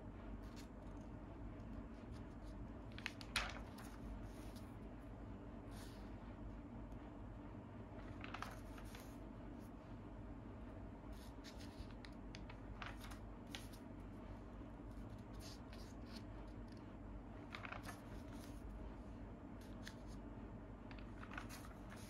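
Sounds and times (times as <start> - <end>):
steady low hum: 0.0 - 22.0
paper pages rustling: 0.4 - 4.8, 7.9 - 9.2, 11.1 - 13.9, 14.9 - 16.8, 17.4 - 18.7, 19.6 - 20.2, 20.9 - 22.0.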